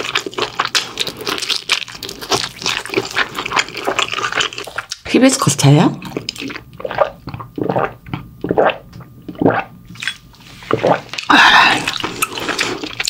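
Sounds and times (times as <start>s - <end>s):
wet chewing and mouth smacks: 0.0s - 5.1s, 6.0s - 13.0s
wet slurp: 6.0s - 13.0s.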